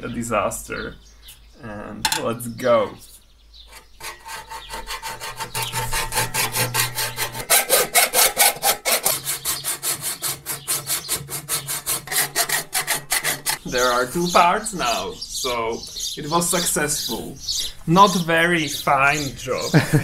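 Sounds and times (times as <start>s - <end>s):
hacksaw cutting pipe: 3.7s - 13.7s.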